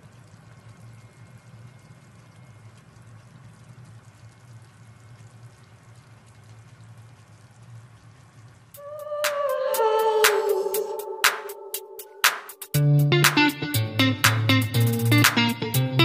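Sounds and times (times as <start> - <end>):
sauce bubbling in a pan: 0.0 - 10.0
low steady hum: 0.0 - 14.2.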